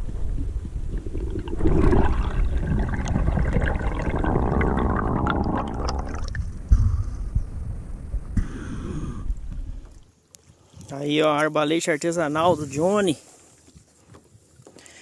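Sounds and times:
underwater bubbling and gurgling: 0.0s - 10.0s.

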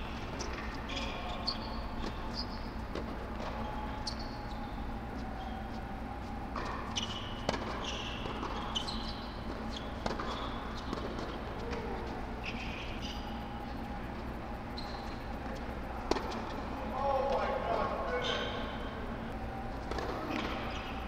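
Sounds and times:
steady low hum: 0.0s - 21.0s
shoe squeaks: 0.4s - 2.8s, 3.4s - 16.5s.

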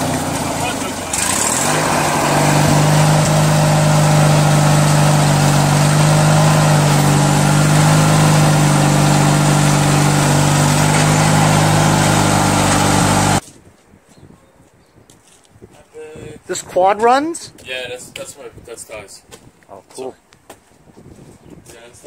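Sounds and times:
lawn tractor engine running: 0.0s - 13.4s.

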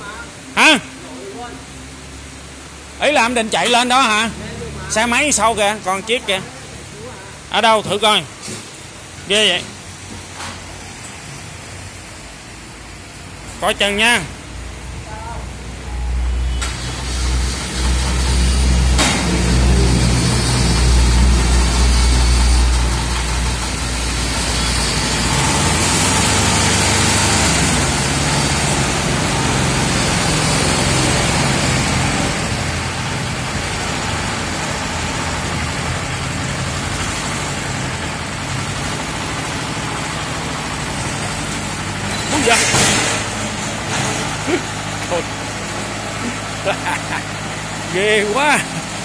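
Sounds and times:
tracked vehicle engine running: 15.6s - 49.0s.

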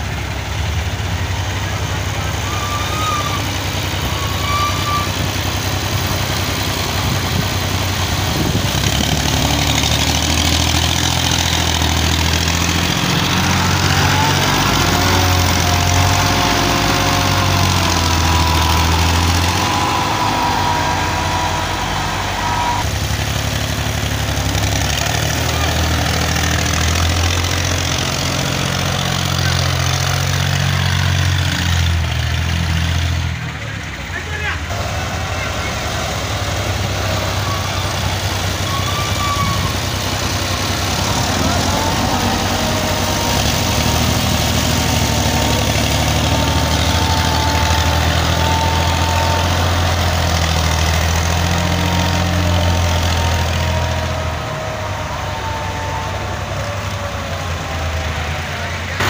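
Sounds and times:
tractor diesel engine under load: 0.0s - 59.0s
thin whine: 12.7s - 23.0s.

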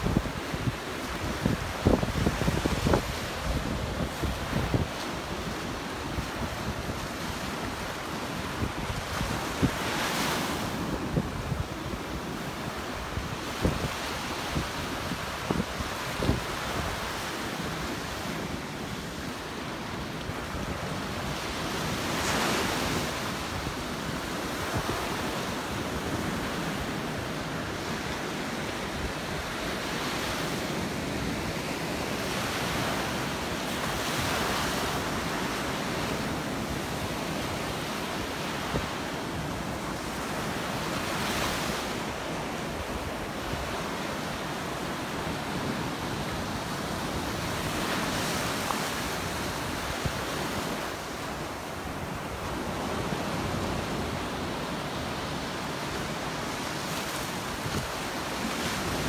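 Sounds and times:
wind on microphone: 0.0s - 19.4s, 52.0s - 59.0s
waves breaking on beach: 0.0s - 59.0s.

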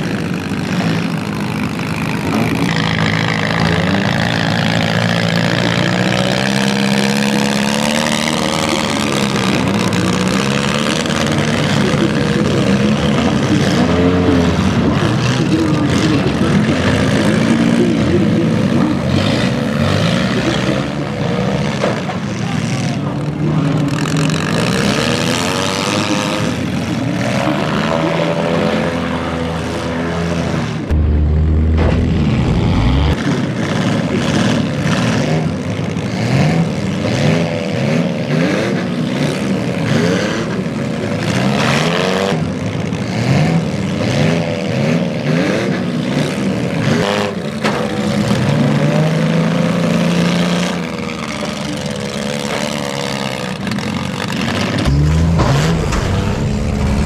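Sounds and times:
car engines revving: 0.0s - 57.0s
deep rumble: 30.8s - 33.2s, 54.9s - 57.0s
short bangs: 30.9s - 33.2s, 54.9s - 57.0s.

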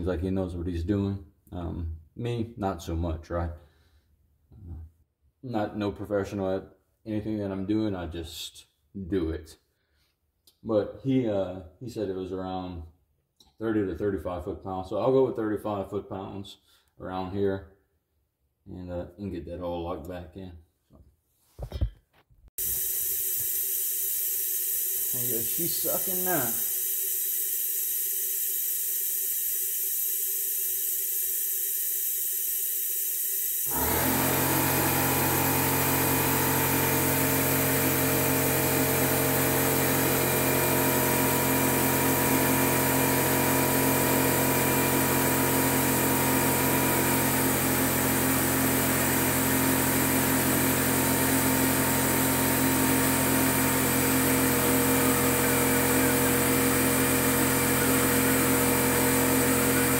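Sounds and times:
suction hiss: 22.6s - 35.6s
motor humming: 22.6s - 51.0s.

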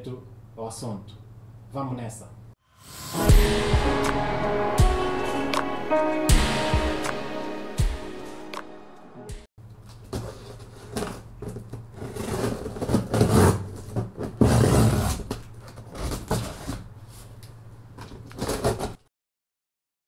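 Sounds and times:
cardboard tearing: 10.1s - 16.9s, 18.3s - 19.0s.

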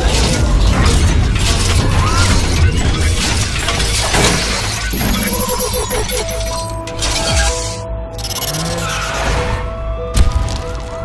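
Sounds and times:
sharp clicks and hits: 0.0s - 8.5s.

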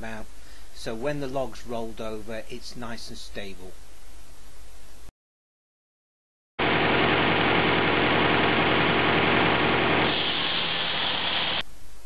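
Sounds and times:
circular saw cutting log: 6.6s - 11.6s
tractor engine hum: 6.6s - 11.6s.

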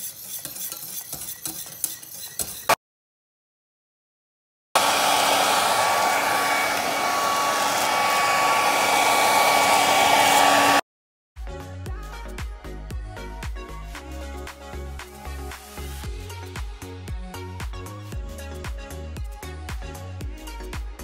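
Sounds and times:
electric motor whining: 4.8s - 10.8s.

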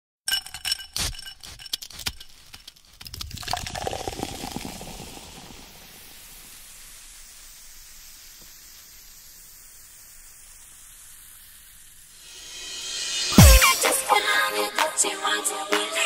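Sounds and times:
dance music: 13.1s - 16.0s.

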